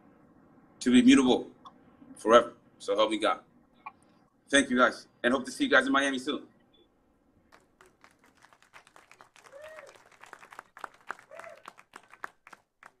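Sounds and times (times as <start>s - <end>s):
faint scattered applause: 7.5s - 13.0s.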